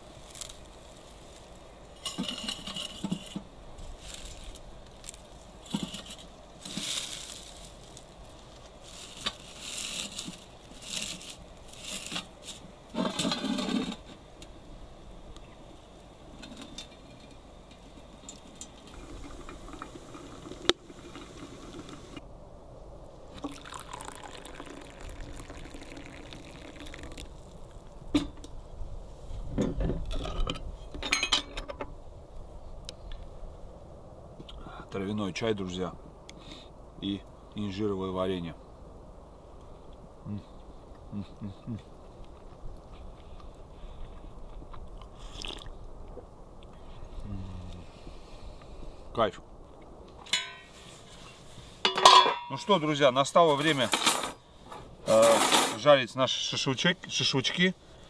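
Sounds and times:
water pouring into a vessel: 0:19.0 - 0:22.2, 0:23.4 - 0:27.9, 0:45.3 - 0:45.7.

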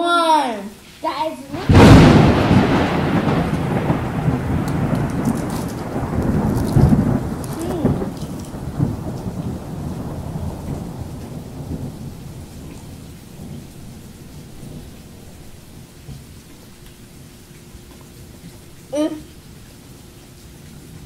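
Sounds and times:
crunching and chewing chips: 0:04.7 - 0:08.6.

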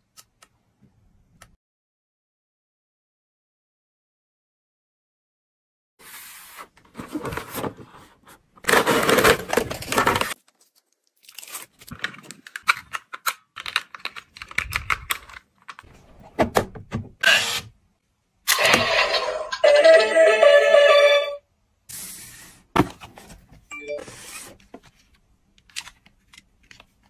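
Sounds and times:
plastic film peeling and crinkling: 0:09.3 - 0:12.8.

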